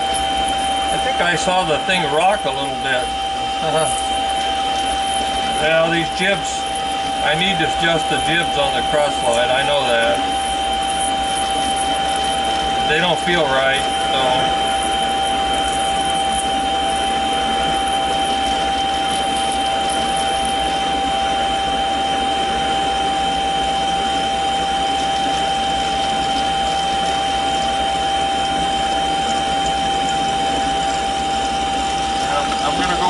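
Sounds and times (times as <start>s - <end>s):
lathe whining: 0.0s - 33.0s.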